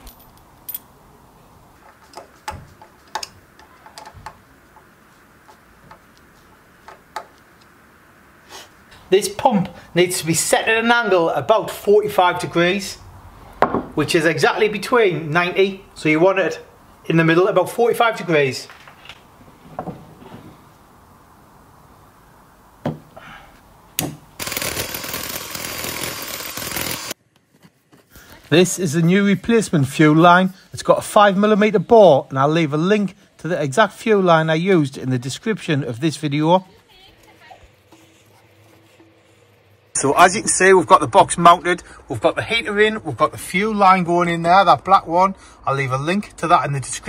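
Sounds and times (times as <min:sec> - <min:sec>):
power drill boring into brick: 0:24.4 - 0:27.2.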